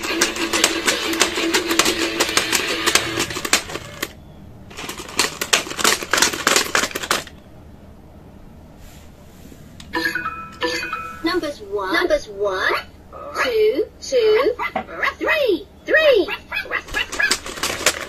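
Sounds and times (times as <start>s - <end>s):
toy plastic clicking and clattering: 0.0s - 7.4s, 16.8s - 18.0s.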